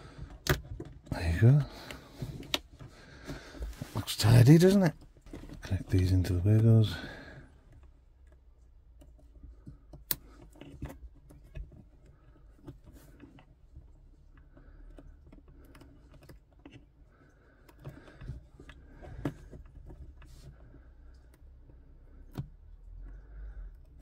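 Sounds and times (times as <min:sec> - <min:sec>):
wires clicking into connectors: 0:00.2 - 0:02.9, 0:07.6 - 0:24.0.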